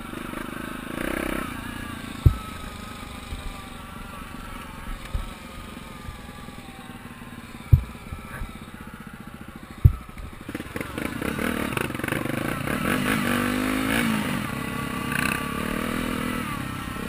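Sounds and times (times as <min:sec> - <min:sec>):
dirt bike engine running: 0:00.0 - 0:17.0
sharp low thumps: 0:02.2 - 0:02.7, 0:07.6 - 0:08.6, 0:09.8 - 0:10.5.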